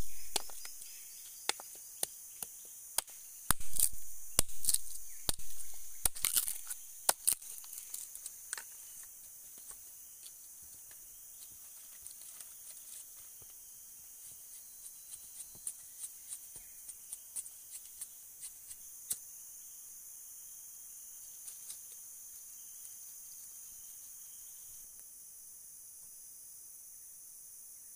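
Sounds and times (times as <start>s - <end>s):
machete chopping bamboo: 0.0s - 0.8s, 1.5s - 8.7s
dry leaves and sticks snapping: 0.0s - 13.6s, 14.3s - 19.2s
forest insects droning: 0.0s - 27.9s
sharp cracks: 3.0s - 8.6s.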